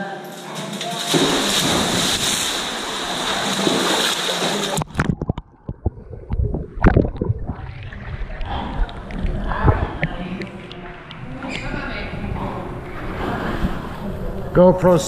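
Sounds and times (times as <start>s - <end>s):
pool water splashing: 0.6s - 14.6s
muffled underwater sloshing: 1.4s - 14.6s.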